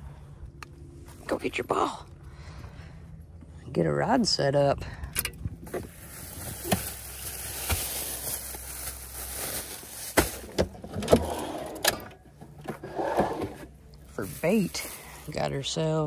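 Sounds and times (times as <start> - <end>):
plastic bag rustling: 5.7 - 11.0, 14.2 - 15.4
drawer pulled out: 10.8 - 13.7.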